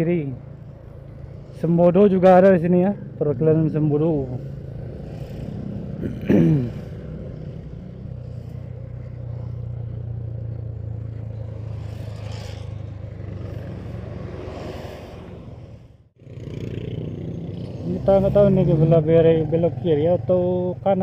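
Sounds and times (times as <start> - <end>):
road and wind noise: 0.0 - 21.0
motorcycle engine running: 16.2 - 21.0.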